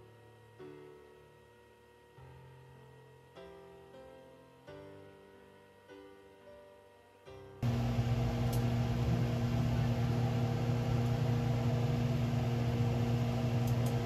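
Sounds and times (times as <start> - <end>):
exhaust fan humming: 7.6 - 14.0.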